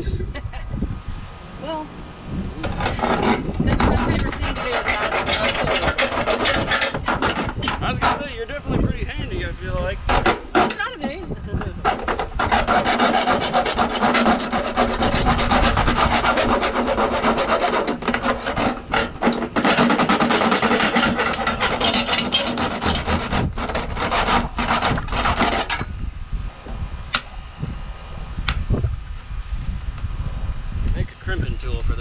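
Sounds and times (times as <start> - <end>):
hand saw cutting downspout: 2.6 - 8.4, 10.0 - 25.9.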